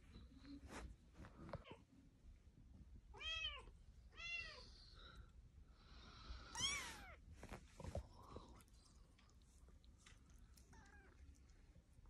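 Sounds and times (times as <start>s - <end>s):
kitten meowing: 6.5s - 7.2s.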